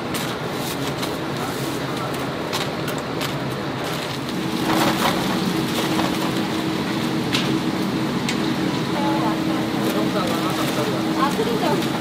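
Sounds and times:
hot oil sizzling: 4.3s - 12.0s.

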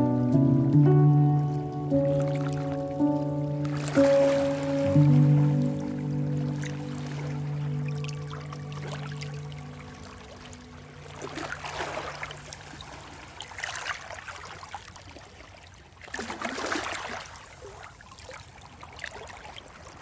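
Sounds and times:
sea water splashing on rocks: 3.6s - 5.7s, 16.0s - 18.4s.

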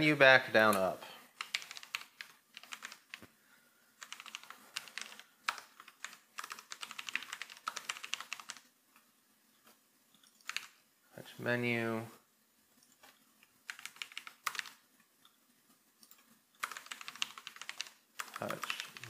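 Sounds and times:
typing on a computer keyboard: 1.4s - 3.2s, 4.0s - 8.7s, 10.2s - 10.8s, 12.8s - 14.8s, 16.0s - 19.0s.

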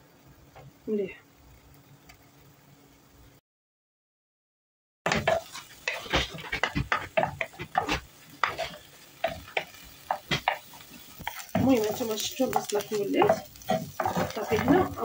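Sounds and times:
onion sizzling in oil: 0.0s - 3.4s, 5.1s - 15.0s
wooden spoon scraping pan: 5.1s - 15.0s.

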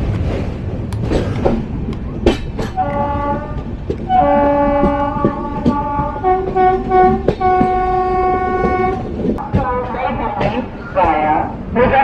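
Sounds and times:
moving train rumble: 0.0s - 12.0s
wheels clicking on rail joints: 0.0s - 12.0s
train horn blast: 2.6s - 9.1s.

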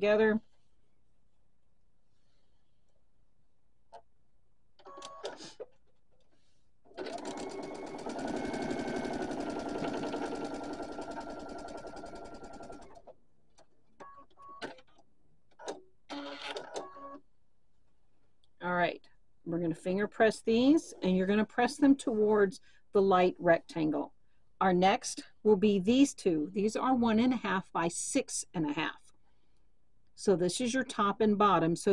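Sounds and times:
sewing machine stitching: 6.9s - 13.1s.

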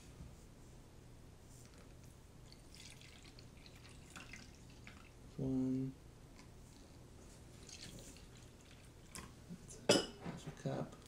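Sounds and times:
liquid trickling and dripping: 2.4s - 5.2s.

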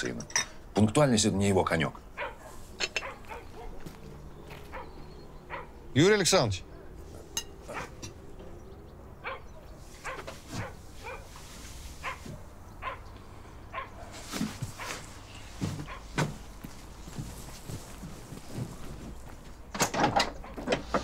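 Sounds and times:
dog barking: 2.2s - 4.0s, 4.6s - 5.8s, 6.7s - 8.0s, 9.2s - 11.4s, 12.0s - 13.1s, 13.7s - 16.2s.

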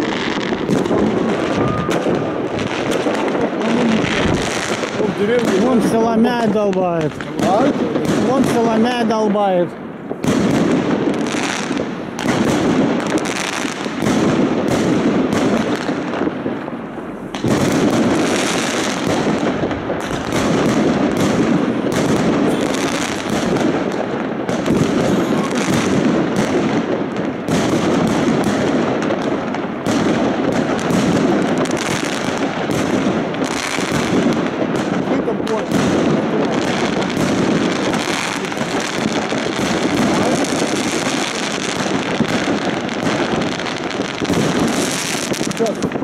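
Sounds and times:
fireworks crackling and banging: 0.0s - 46.0s.

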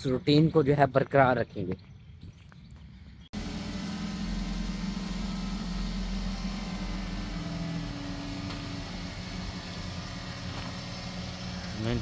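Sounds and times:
car engine idling: 3.4s - 12.0s.

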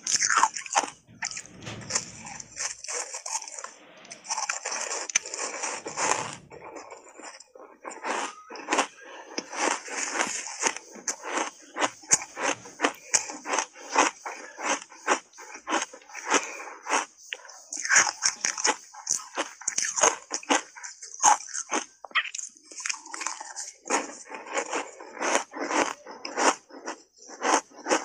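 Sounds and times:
chewing and crunching ice: 0.0s - 1.0s, 6.7s - 28.0s.

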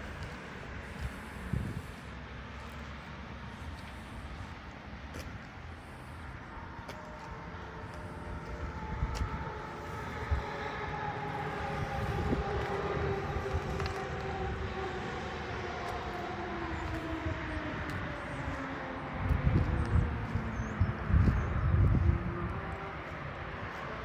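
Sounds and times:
steady engine drone: 0.0s - 24.0s.

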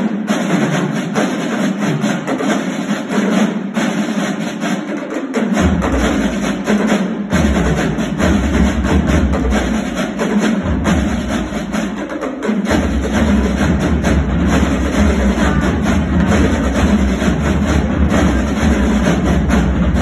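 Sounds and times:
snare drumline playing: 0.0s - 20.0s.

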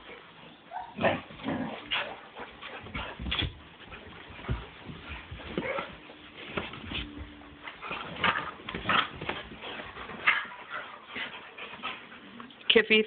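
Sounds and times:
dogs scuffling: 0.0s - 13.0s.

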